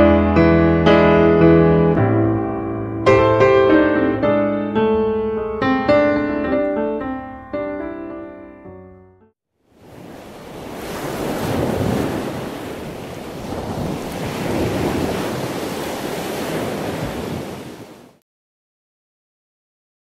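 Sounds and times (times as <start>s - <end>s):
ocean surf on beach: 9.7s - 18.2s.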